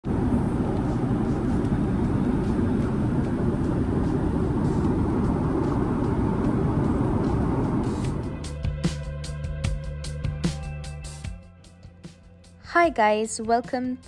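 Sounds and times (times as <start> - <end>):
aircraft cabin rumble: 0.0 - 8.7.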